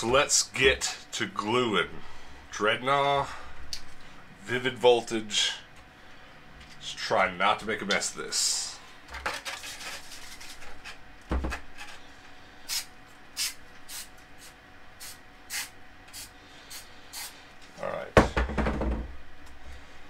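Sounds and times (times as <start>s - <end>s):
aerosol spray hissing: 15.0s - 17.3s.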